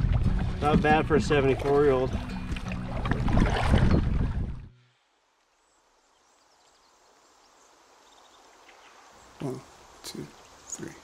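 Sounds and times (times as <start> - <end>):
wind and water rushing on microphone: 0.0 - 4.7
faint river hiss: 4.8 - 11.0.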